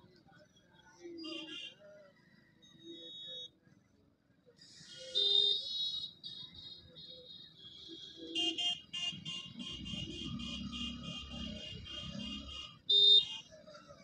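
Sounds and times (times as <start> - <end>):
vehicle horns honking: 8.1 - 13.5.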